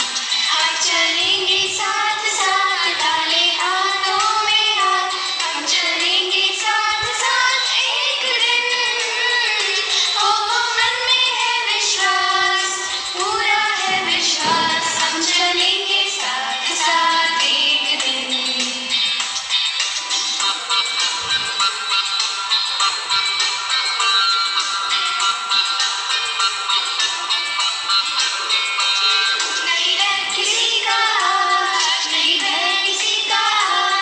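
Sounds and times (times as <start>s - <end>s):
woman singing unaccompanied: 0.3s - 19.1s, 29.7s - 34.0s.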